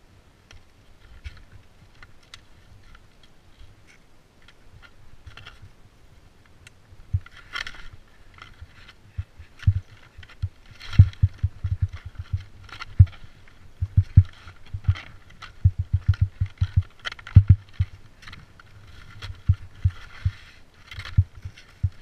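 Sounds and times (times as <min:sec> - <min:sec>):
skis scraping on rock: 0:07.3 - 0:22.0.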